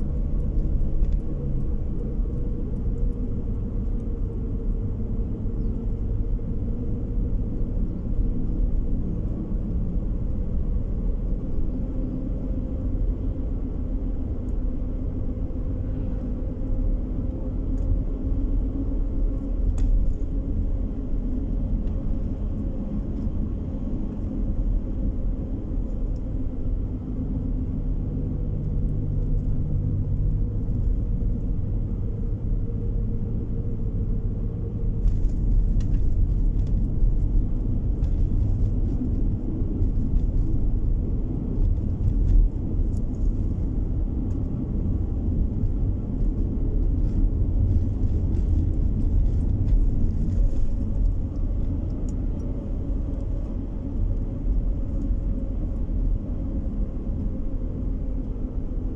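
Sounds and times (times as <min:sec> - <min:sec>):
car tyres and engine rumble: 0:00.0 - 0:58.9.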